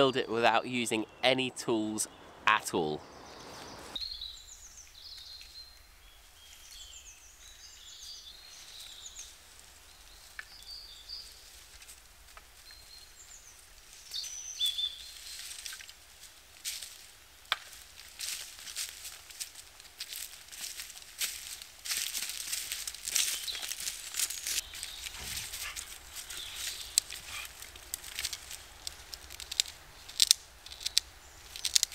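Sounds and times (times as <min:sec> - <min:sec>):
birds chirping and singing: 0:00.0 - 0:09.3, 0:23.2 - 0:29.2
footsteps on dry leaves: 0:11.2 - 0:31.9.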